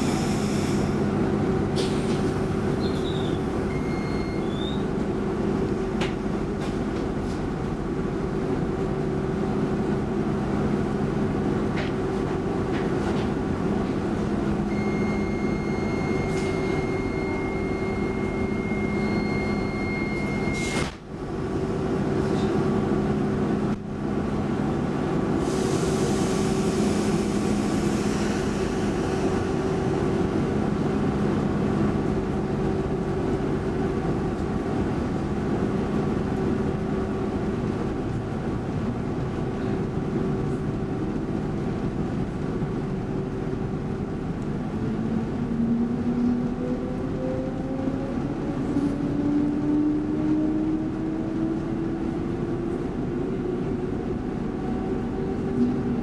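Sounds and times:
hiss: 0:00.0 - 0:01.0, 0:25.4 - 0:29.4
train wheels rumbling on track: 0:00.0 - 0:56.0.

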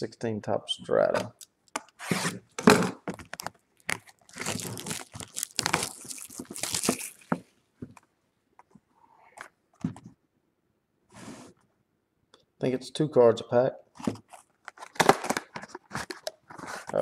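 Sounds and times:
packaging crinkling and tearing: 0:03.1 - 0:07.4, 0:14.3 - 0:17.0.

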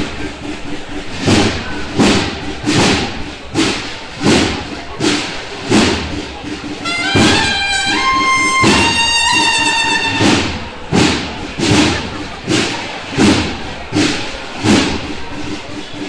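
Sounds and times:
drums beating a steady pulse: 0:00.0 - 0:16.0
cornets playing held notes: 0:06.8 - 0:10.6.

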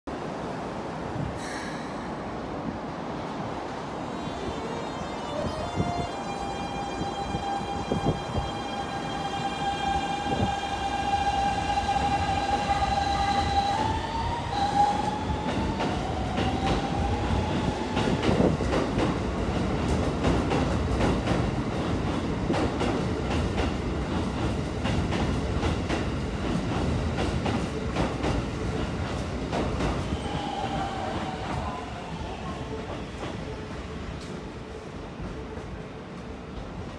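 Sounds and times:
train wheel rumble: 0:01.1 - 0:36.9
train inverter musical tone: 0:03.9 - 0:18.6
rail joint clicks: 0:32.7 - 0:34.6.

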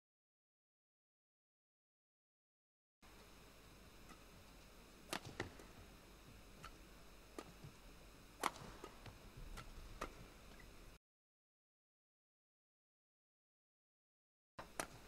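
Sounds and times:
rackets hitting shuttlecock: 0:05.1 - 0:05.7, 0:08.4 - 0:10.2.

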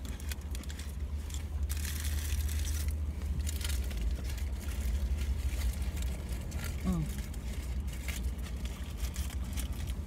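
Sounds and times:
paper wrapper rustling and crinkling: 0:00.0 - 0:10.0.

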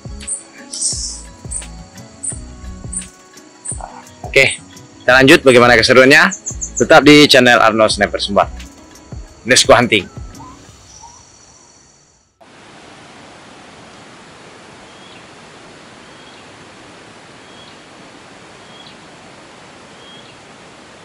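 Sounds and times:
forest ambience hiss: 0:00.0 - 0:21.0
faint high bird call: 0:00.2 - 0:02.4, 0:10.4 - 0:11.9.

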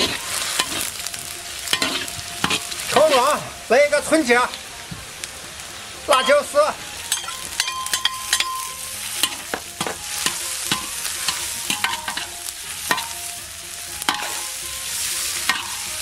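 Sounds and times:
metal spatula scraping wok: 0:00.0 - 0:03.5, 0:07.0 - 0:16.0
food sizzling in hot fat: 0:00.0 - 0:16.0.

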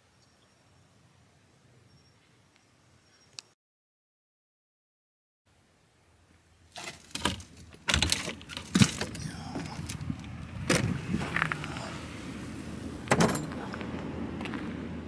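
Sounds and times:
sharp clicks and knocks: 0:06.8 - 0:09.2.

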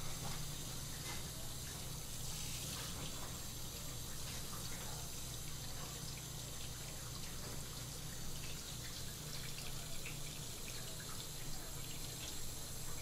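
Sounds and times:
tap water running and splashing: 0:00.0 - 0:13.0.

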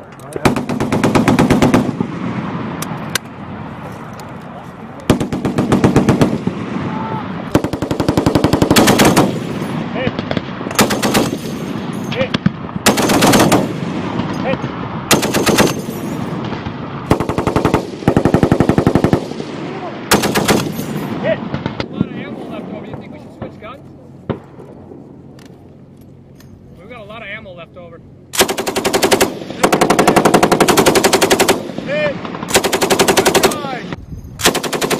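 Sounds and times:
machine gun bursts: 0:07.6 - 0:09.4, 0:10.7 - 0:11.5, 0:12.9 - 0:13.7, 0:15.1 - 0:15.9, 0:20.1 - 0:20.8, 0:28.4 - 0:31.7, 0:32.5 - 0:33.8, 0:34.4 - 0:34.9.

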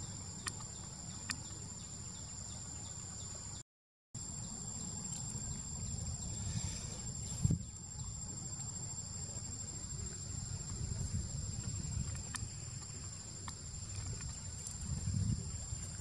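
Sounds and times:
faint ticks: 0:11.6 - 0:14.8.

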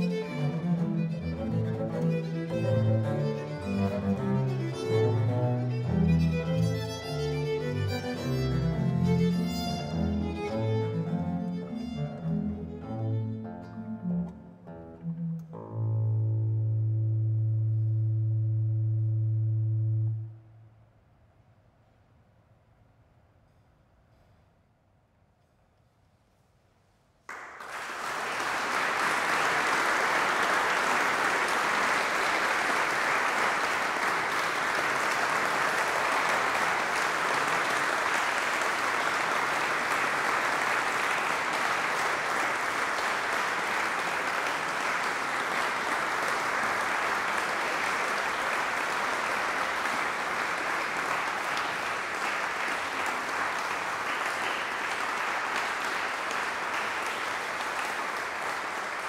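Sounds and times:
audience applauding: 0:00.0 - 0:12.3, 0:27.3 - 0:59.0.

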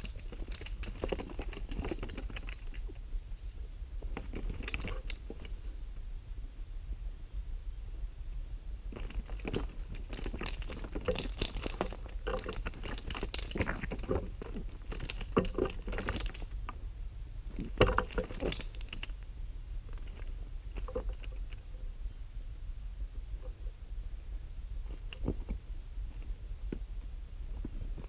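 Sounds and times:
crackling and rustling in dry brush: 0:00.0 - 0:06.2, 0:08.7 - 0:16.8, 0:24.2 - 0:28.0.

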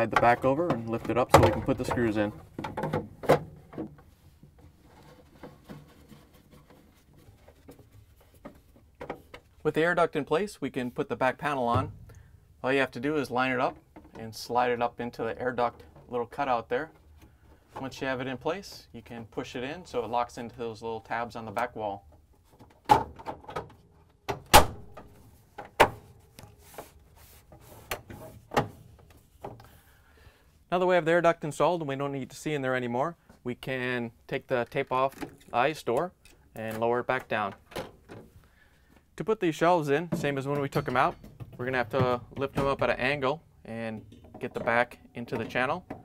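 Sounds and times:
plastic air duct handled: 0:00.0 - 0:09.8, 0:22.4 - 0:29.8.

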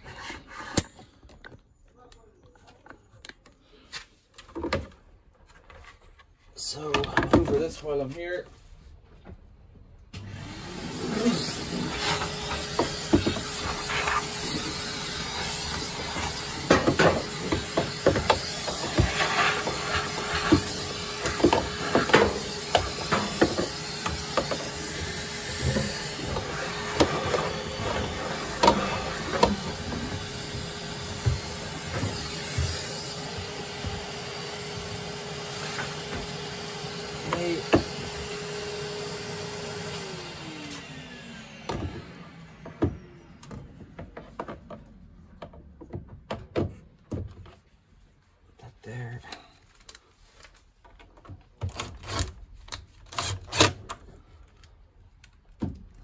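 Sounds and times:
vacuum cleaner whining: 0:10.0 - 0:47.5
nozzle knocking and scraping: 0:11.2 - 0:38.3.

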